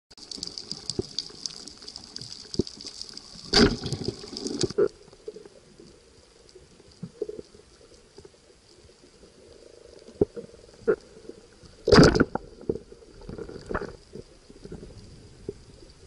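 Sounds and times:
underwater crackling clicks: 0:00.2 - 0:08.8, 0:09.8 - 0:15.6
underwater rushing burst: 0:03.4 - 0:04.9.

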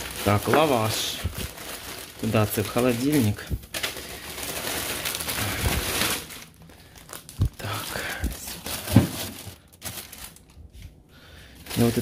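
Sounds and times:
plastic bags rustling: 0:00.0 - 0:12.0
packs knocking on fridge shelf: 0:08.8 - 0:09.4.

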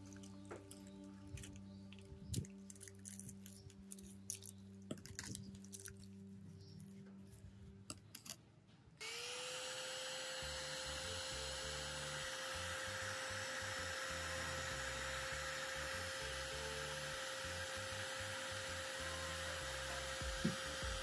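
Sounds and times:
foil crinkling and tapping: 0:00.0 - 0:07.0
heat gun fan whine: 0:09.0 - 0:21.0.

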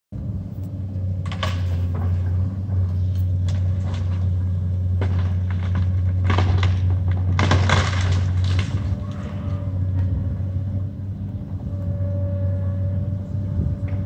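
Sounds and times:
diesel engine humming: 0:00.2 - 0:14.0
wood cracking and snapping: 0:03.4 - 0:09.4.

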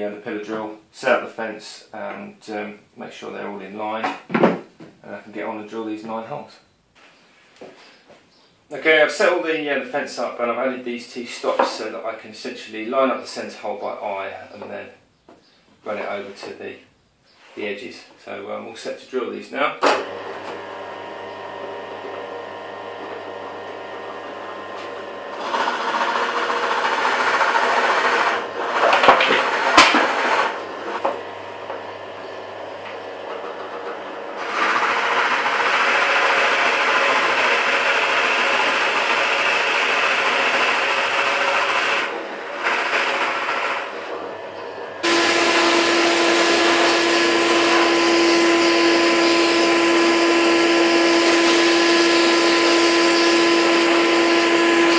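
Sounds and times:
drill bit cutting wood: 0:19.9 - 0:54.9
drill motor hum: 0:19.9 - 0:54.9
vacuum cleaner humming: 0:19.9 - 0:54.9.

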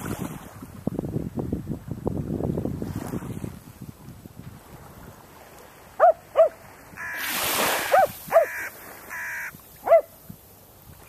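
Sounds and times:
crow cawing: 0:07.0 - 0:09.6.

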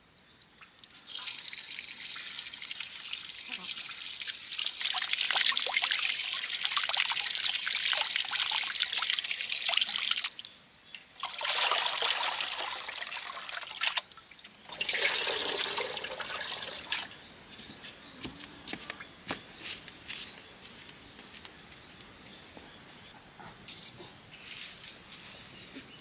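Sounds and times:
water pouring: 0:00.0 - 0:17.2.

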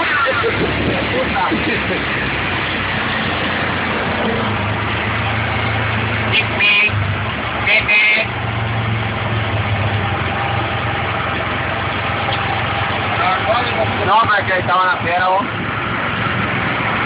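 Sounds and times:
horn beeping: 0:06.2 - 0:08.4.

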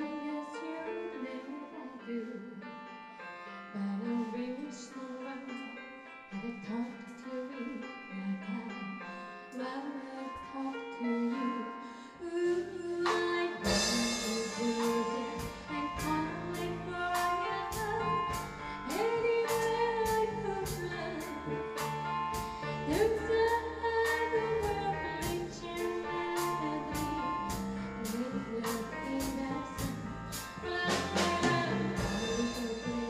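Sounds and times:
woman singing: 0:00.0 - 0:02.9, 0:03.7 - 0:22.0, 0:22.8 - 0:33.0
live band playing: 0:13.1 - 0:21.0, 0:28.6 - 0:33.0
cymbal crash: 0:13.6 - 0:15.0.

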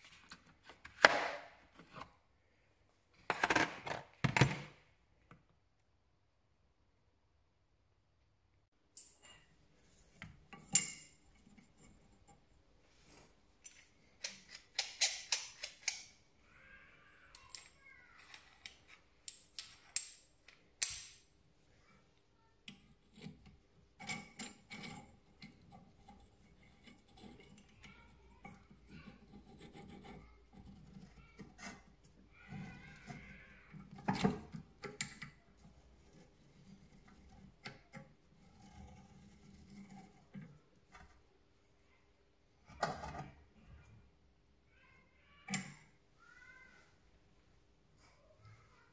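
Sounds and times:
metal tools clicking and scraping: 0:08.9 - 0:09.6, 0:10.2 - 0:12.5, 0:13.6 - 0:16.3, 0:17.3 - 0:21.3, 0:22.7 - 0:41.1, 0:45.4 - 0:45.9.

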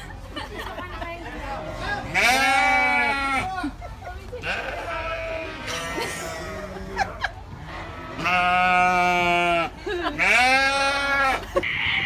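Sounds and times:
sheep bleating: 0:01.8 - 0:03.6, 0:04.4 - 0:06.9, 0:07.6 - 0:12.0.

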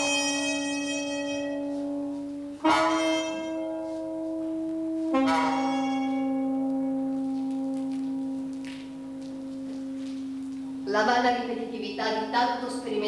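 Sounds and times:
wind ensemble long held notes: 0:01.6 - 0:13.0.

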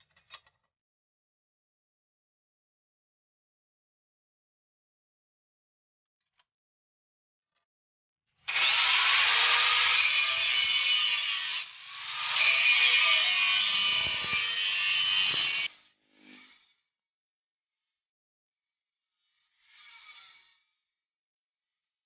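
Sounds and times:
angle grinder grinding steel: 0:08.5 - 0:16.7.

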